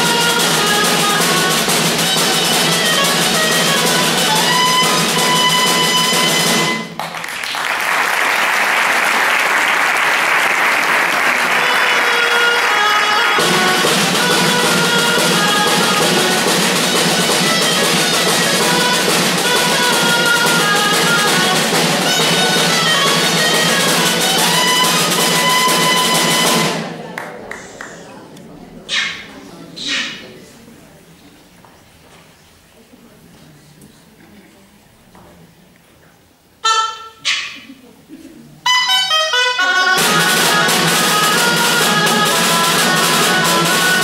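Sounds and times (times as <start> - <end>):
folk dance music with drums: 0.0 - 7.1, 10.6 - 27.1, 38.6 - 44.0
applause: 6.9 - 13.4, 27.0 - 28.0.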